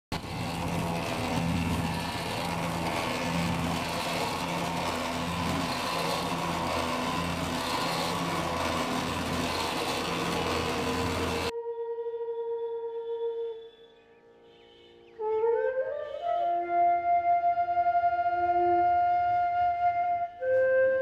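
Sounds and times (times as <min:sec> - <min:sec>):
electric motor hum: 0:00.1 - 0:11.5.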